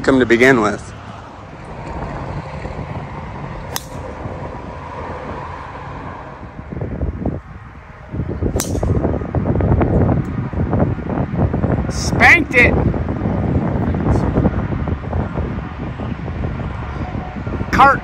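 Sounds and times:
wind rumbling on microphone: 0.0s - 18.0s
golf driver striking ball: 3.7s - 4.3s, 8.5s - 9.2s.

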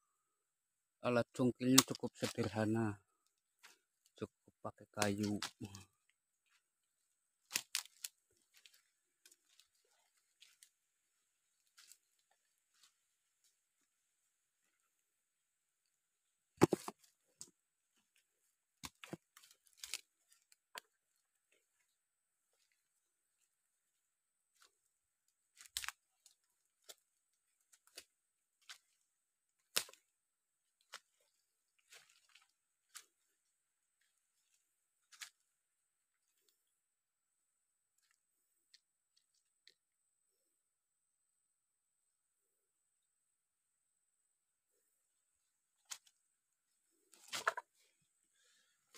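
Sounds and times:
footsteps crunching on dry leaves: 7.5s - 10.7s, 19.3s - 20.4s, 30.8s - 33.2s.

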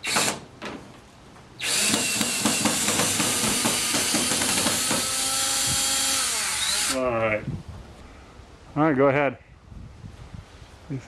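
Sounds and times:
cordless drill driving screw into wood: 0.0s - 0.5s, 1.6s - 7.0s.

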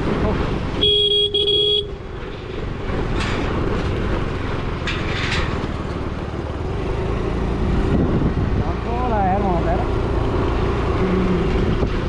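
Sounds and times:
tyres clattering over steel slats: 4.7s - 5.8s.

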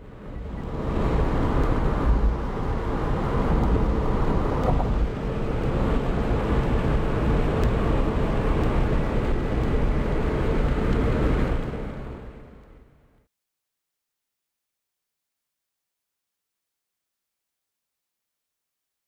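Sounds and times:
deep rumble: 0.0s - 12.6s
car engine and road noise: 0.0s - 13.3s.

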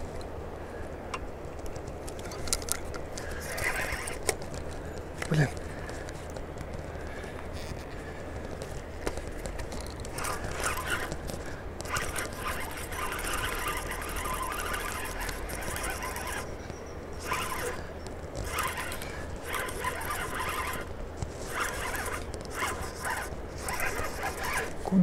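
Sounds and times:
spinning reel cranking: 3.4s - 4.2s, 9.7s - 16.6s, 17.2s - 24.8s.

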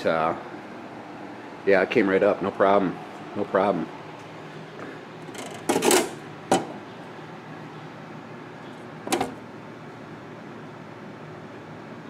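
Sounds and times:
steady low hum: 0.0s - 12.0s
metal cover rattling scrape: 5.2s - 6.7s.

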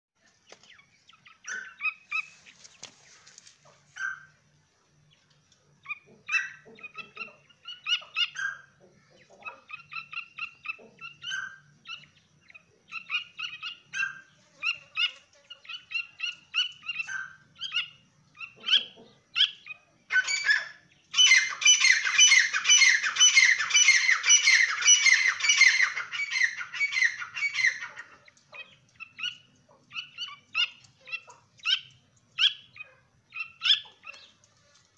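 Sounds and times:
francolins chirping: 0.2s - 34.9s
rapid loud bird calls: 0.4s - 34.9s.

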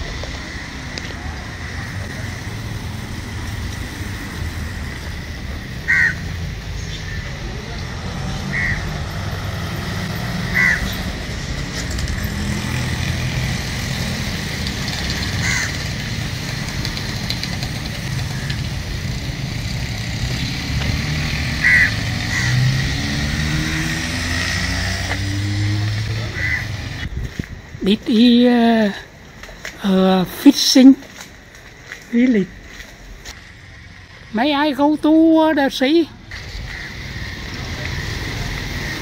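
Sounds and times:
crows cawing: 5.8s - 6.4s, 8.4s - 9.0s, 10.4s - 11.2s, 15.2s - 16.2s, 18.2s - 18.8s, 21.5s - 22.9s, 26.2s - 27.0s, 36.6s - 37.5s.

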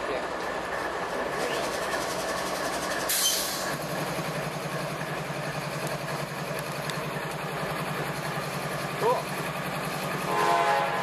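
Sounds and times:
diesel locomotive running: 0.0s - 11.0s
brief hiss: 3.1s - 3.7s.

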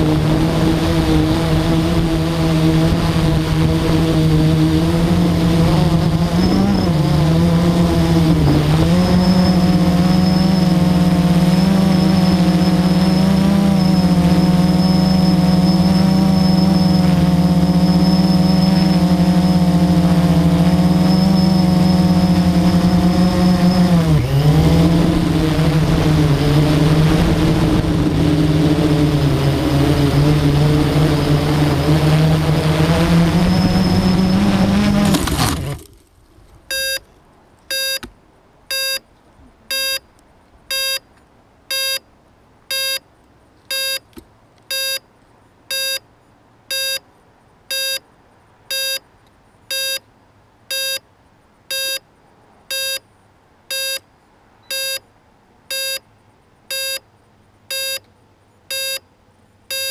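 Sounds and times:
quadcopter motors buzzing: 0.0s - 36.1s
short electronic beeps: 36.7s - 37.0s, 37.7s - 38.1s, 38.7s - 39.0s, 39.7s - 40.1s, 40.7s - 41.1s, 41.7s - 42.0s, 42.7s - 43.0s, 43.7s - 44.1s, 44.7s - 45.0s, 45.7s - 46.0s, 46.7s - 47.0s, 47.7s - 48.0s, 48.7s - 49.0s, 49.7s - 50.0s, 50.7s - 51.0s, 51.7s - 52.0s, 52.7s - 53.0s, 53.7s - 54.0s, 54.6s - 55.1s, 55.7s - 56.0s, 56.7s - 57.0s, 57.7s - 58.0s, 58.7s - 59.1s.

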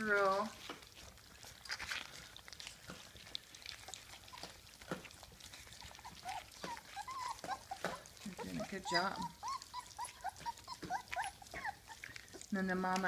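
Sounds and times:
puppies lapping and smacking: 0.0s - 13.0s
puppy whine: 3.7s - 12.5s.

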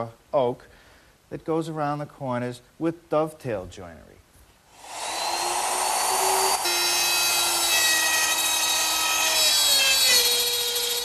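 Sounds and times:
router cutting wood: 4.8s - 11.0s.

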